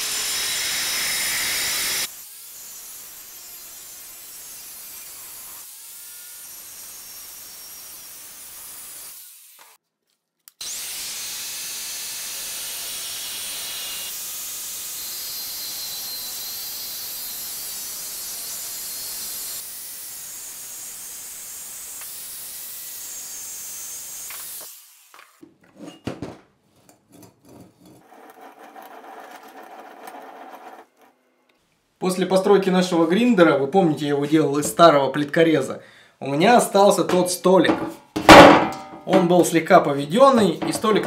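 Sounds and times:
angle grinder cutting metal: 0:00.0 - 0:09.8, 0:10.6 - 0:25.4, 0:28.0 - 0:31.2.

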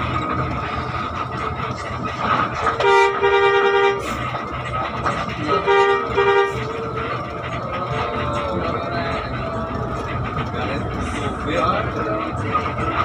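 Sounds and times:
bus engine drone: 0:00.0 - 0:13.0
bus air horn: 0:02.4 - 0:07.3.

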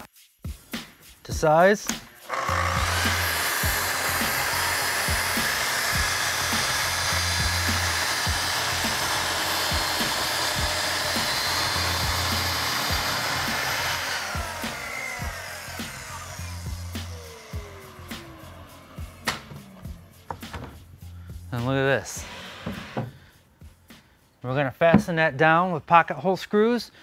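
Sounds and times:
background music with beat: 0:00.0 - 0:22.2, 0:23.1 - 0:25.4
circular saw cutting plywood: 0:01.9 - 0:20.8, 0:22.0 - 0:23.2.

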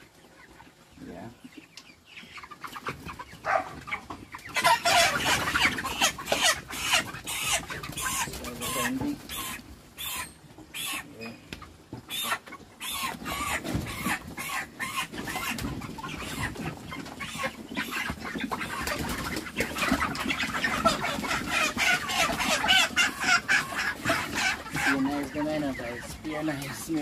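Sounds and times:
chickens clucking and squawking: 0:00.0 - 0:27.0.

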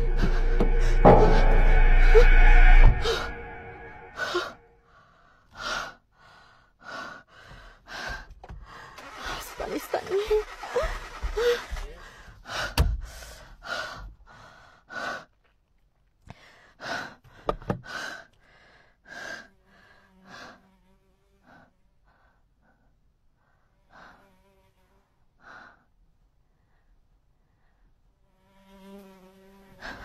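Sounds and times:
person breathing hard: 0:04.2 - 0:09.5, 0:10.5 - 0:15.4, 0:16.3 - 0:20.6.

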